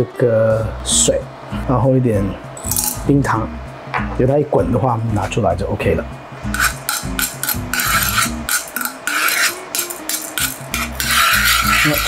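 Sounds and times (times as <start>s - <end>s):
wooden spoon scraping a metal pan: 6.6s - 12.0s.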